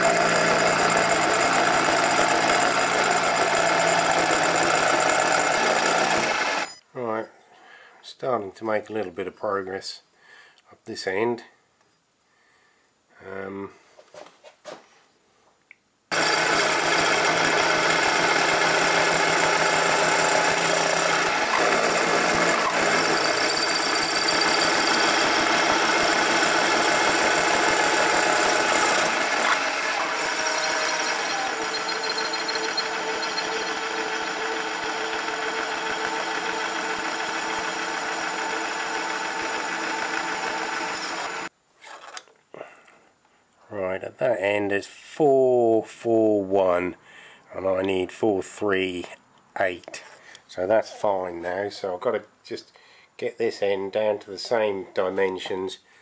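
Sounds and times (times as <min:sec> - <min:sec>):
metal lathe cutting: 0:00.0 - 0:06.7, 0:16.1 - 0:41.5.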